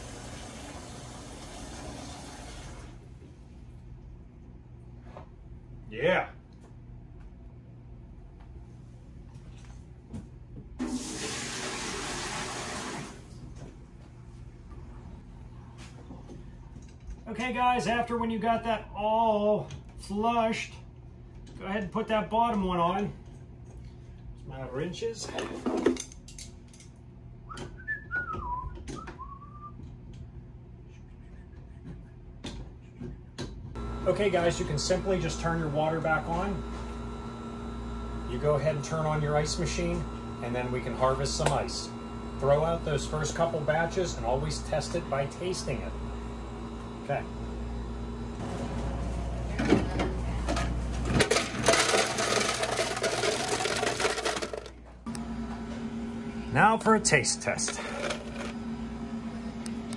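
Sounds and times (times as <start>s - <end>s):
person whistling a tune: 27.5s - 29.8s
ice rattling into plastic pan: 51.1s - 54.8s, 57.8s - 58.5s.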